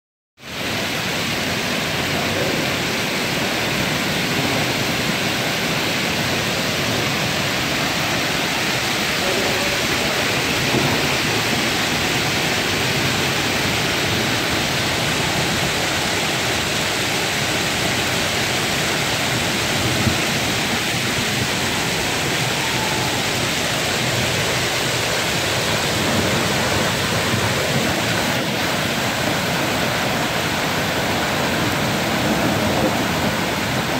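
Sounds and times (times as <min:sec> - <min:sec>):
hail and heavy rain on asphalt: 0:00.5 - 0:33.9.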